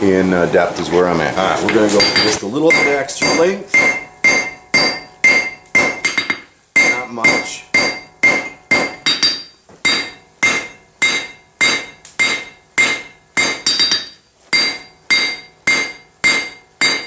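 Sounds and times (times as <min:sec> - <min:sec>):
hammer striking steel on anvil: 0:01.7 - 0:17.0.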